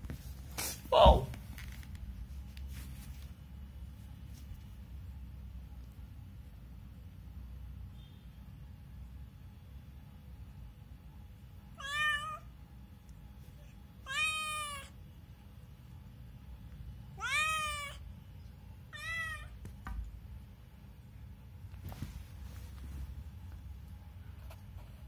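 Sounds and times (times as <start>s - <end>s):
cat meowing: 11.7s - 12.5s, 14.0s - 15.0s, 17.2s - 18.0s, 18.9s - 19.6s.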